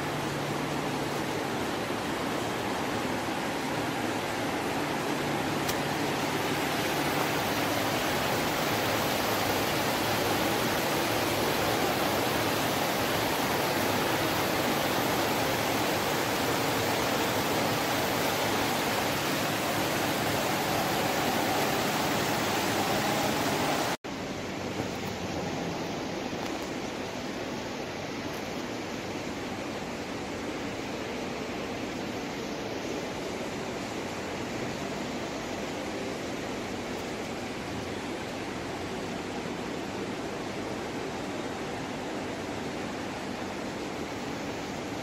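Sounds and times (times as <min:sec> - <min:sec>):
steady hiss: 0:00.0 - 0:45.0
water falling and splashing: 0:00.1 - 0:24.0.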